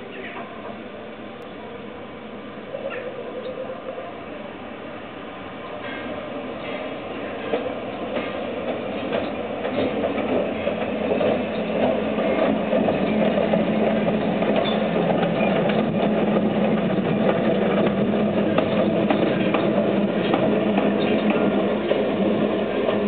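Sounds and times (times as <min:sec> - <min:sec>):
electric locomotive humming: 0:00.0 - 0:23.0
wheels clicking on rails: 0:05.8 - 0:23.0.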